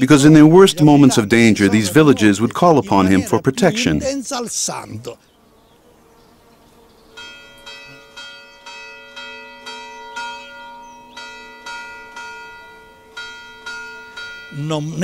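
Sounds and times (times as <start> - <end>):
church bell tolling: 7.2 - 15.0.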